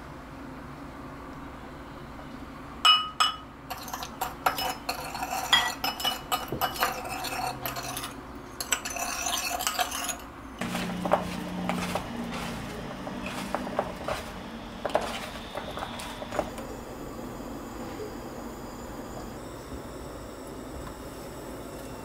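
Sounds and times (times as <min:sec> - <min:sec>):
metal spoon clinking on glass: 0:02.9 - 0:10.3
spoon stirring in glass bowl: 0:03.2 - 0:16.5
food tossed in flour: 0:10.6 - 0:16.5.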